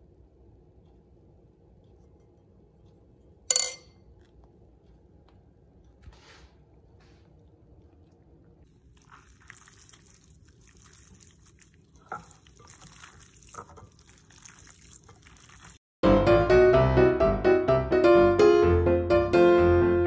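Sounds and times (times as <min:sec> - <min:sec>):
wet squishing of meat: 0:07.5 - 0:15.8
loud piano music: 0:16.0 - 0:20.0.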